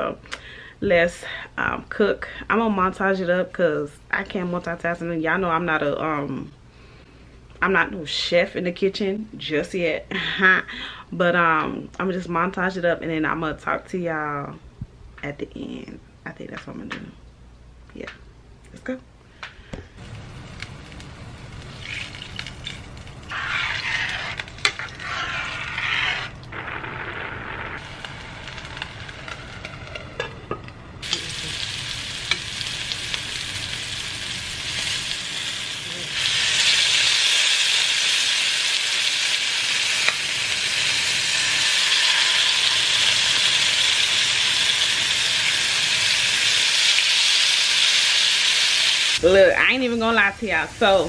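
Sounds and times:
chicken sizzling in frying pan: 0:25.1 - 0:30.3, 0:31.0 - 0:49.2.

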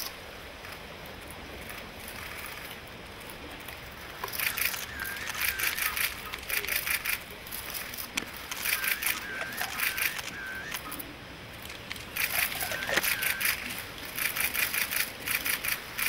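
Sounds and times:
camera shutters clicking: 0:04.2 - 0:11.0, 0:11.6 - 0:16.0.

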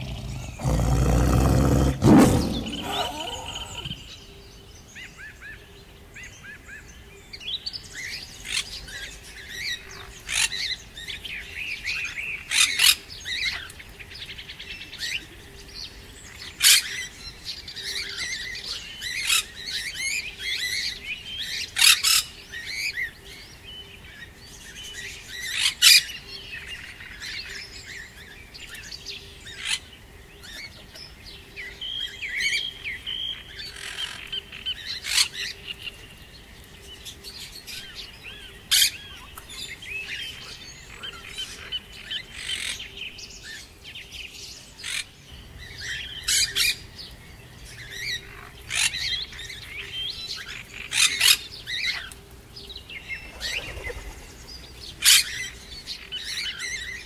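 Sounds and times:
small birds chirping: 0:00.0 - 0:05.3, 0:23.8 - 0:57.0.

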